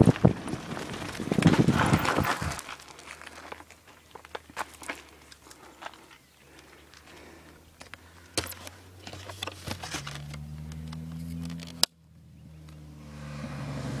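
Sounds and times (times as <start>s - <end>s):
handling rustling and clicking: 0.0s - 12.0s
approaching vehicle engine hum: 6.8s - 14.0s.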